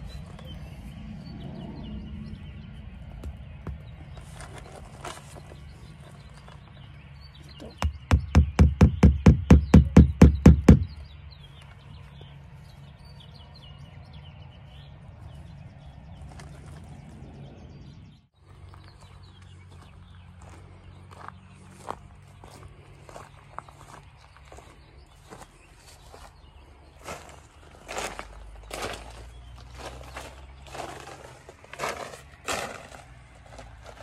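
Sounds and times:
birds chirping: 0.0s - 32.4s
sharp knocks: 7.8s - 11.0s.

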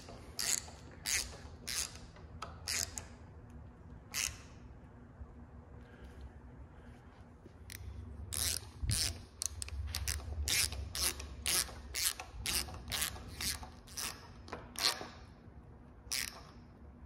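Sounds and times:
ratcheting screwdriver clicking: 0.0s - 3.2s, 7.7s - 15.1s, 16.1s - 16.6s.

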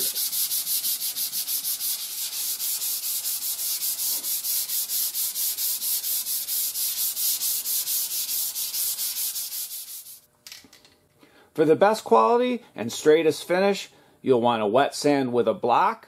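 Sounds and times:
sandpaper scratching on car panel: 0.0s - 10.2s.

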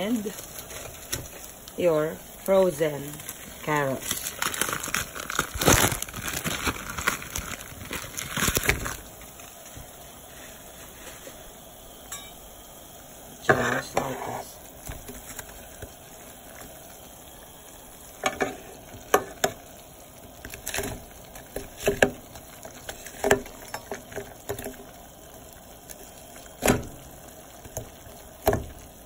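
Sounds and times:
broth boiling and bubbling: 0.0s - 29.0s
carrots splashing into pot: 25.8s - 29.0s.

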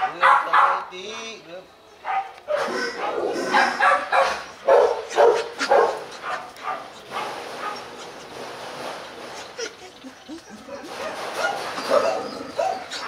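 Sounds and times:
dogs barking: 0.0s - 0.9s, 2.0s - 13.0s
dog whining: 9.3s - 13.0s.

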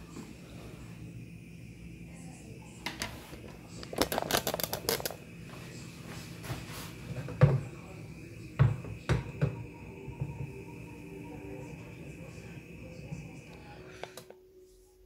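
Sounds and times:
cupboard doors and dishes knocking: 7.2s - 7.7s, 8.6s - 9.6s.

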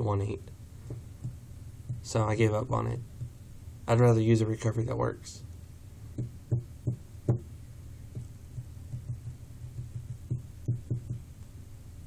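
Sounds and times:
steady low hum: 0.0s - 12.0s
fingers tapping on tabletop: 0.9s - 2.1s, 6.2s - 7.5s, 8.1s - 11.2s.

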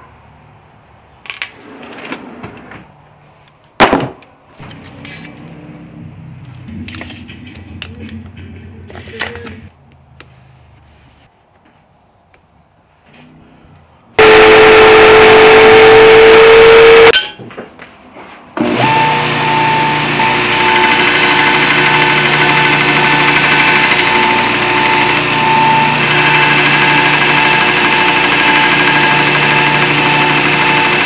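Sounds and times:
belt grinder whining: 14.2s - 17.1s, 18.6s - 31.0s.

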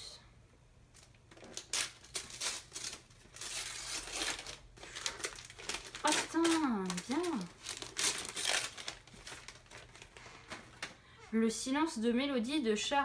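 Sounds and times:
gift wrap tearing and crinkling: 1.0s - 11.0s.

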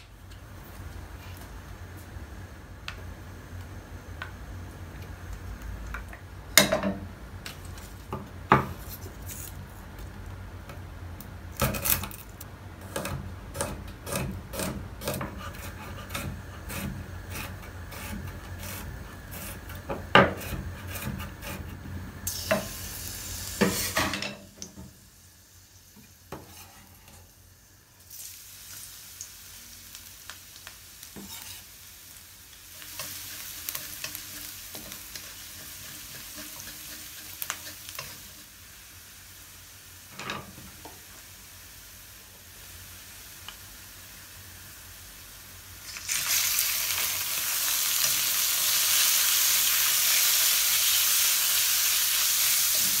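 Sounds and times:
garlic sizzling in hot oil: 12.8s - 53.0s.

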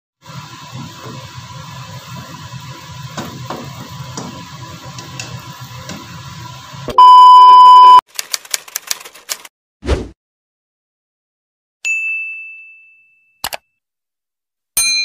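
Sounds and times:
loud electronic beep: 6.9s - 8.0s.

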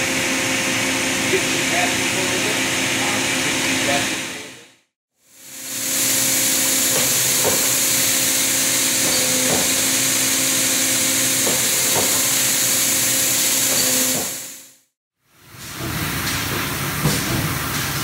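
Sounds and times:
tube bending machine humming: 5.4s - 14.6s.

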